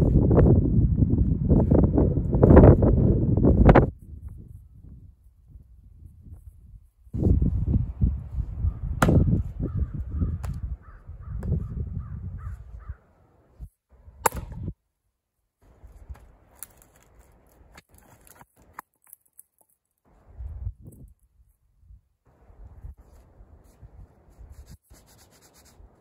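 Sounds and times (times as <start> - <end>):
wind noise on microphone: 0.0 - 13.0, 13.6 - 14.8, 20.1 - 26.0
maul splitting firewood: 9.0 - 9.3, 14.0 - 14.8, 15.6 - 20.3.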